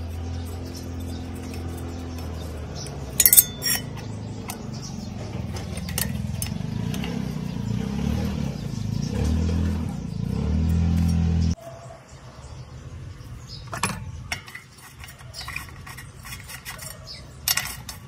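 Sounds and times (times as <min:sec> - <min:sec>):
hex key clinking on bolts: 0:03.2 - 0:04.6.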